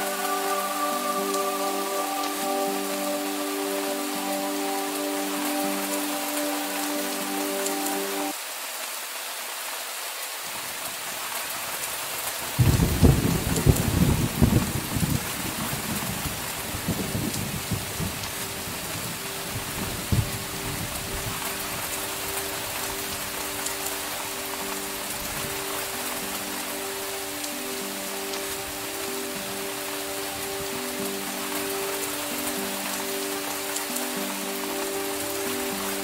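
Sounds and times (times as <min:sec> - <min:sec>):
soft background music: 0:00.0 - 0:08.4, 0:12.6 - 0:36.0
heavy rain: 0:00.0 - 0:36.0
thunder rumbling: 0:12.6 - 0:21.9.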